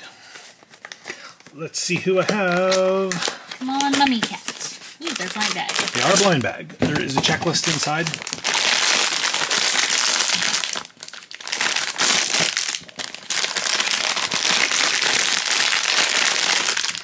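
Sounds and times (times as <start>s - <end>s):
foil bag crinkling: 2.2s - 6.4s, 7.5s - 17.0s.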